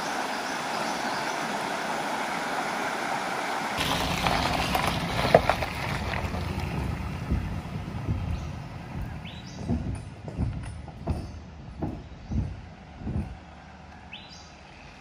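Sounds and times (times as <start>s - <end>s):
creek water running: 0.0s - 9.5s
tyres rumbling over wooden bridge: 3.8s - 13.9s
sharp knocks: 8.9s - 13.4s.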